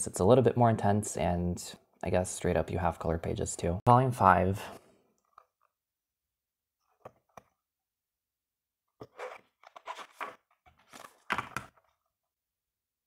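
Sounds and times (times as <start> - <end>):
pages flipping: 9.0 - 12.1.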